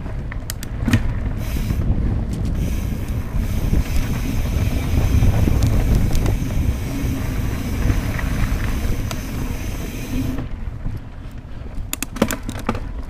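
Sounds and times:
wind buffeting microphone: 0:00.0 - 0:12.0
bike rumbling on dirt trail: 0:00.0 - 0:13.0
clicks and rattles: 0:11.9 - 0:12.9.

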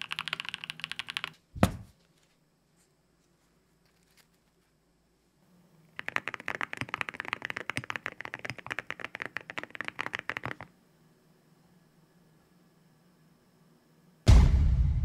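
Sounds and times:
mechanical keyboard typing: 0:00.0 - 0:01.4, 0:06.0 - 0:10.7.

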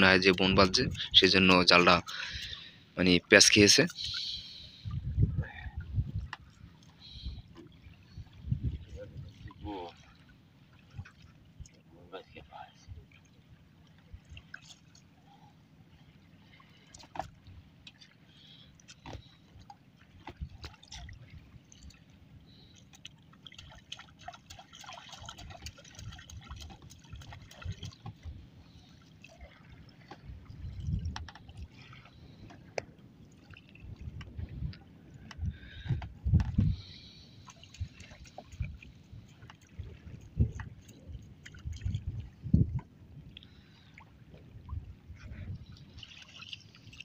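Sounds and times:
water dripping and splashing: 0:00.0 - 0:04.9, 0:13.0 - 0:15.0, 0:16.5 - 0:47.0.

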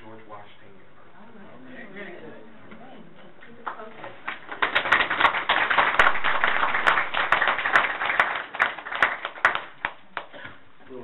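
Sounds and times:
people clapping: 0:03.5 - 0:10.6.

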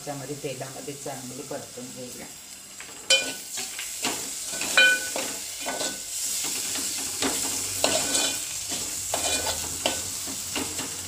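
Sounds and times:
paste sizzling in hot oil: 0:00.1 - 0:11.0
metal spoon scraping a pot: 0:06.8 - 0:10.1.

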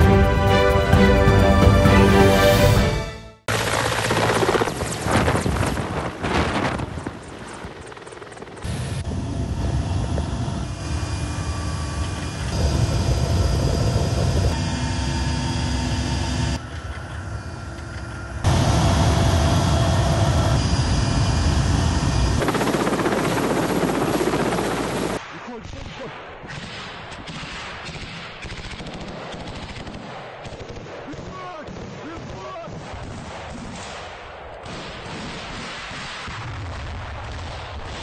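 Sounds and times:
helicopter rotor and turbine whine: 0:00.0 - 0:25.2.

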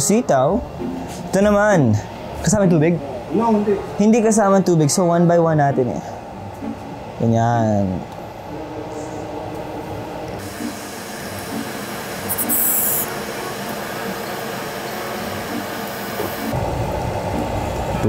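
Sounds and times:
stove hissing: 0:10.4 - 0:16.6.

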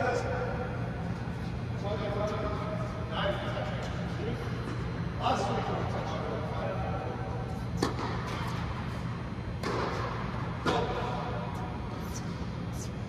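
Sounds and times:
steady low hum: 0:00.0 - 0:13.0
tennis balls bouncing: 0:07.8 - 0:11.2.

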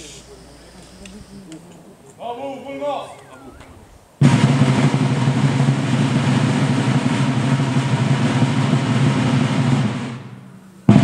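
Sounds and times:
loud bang: 0:04.2 - 0:11.0
snare drum roll: 0:04.2 - 0:11.0.

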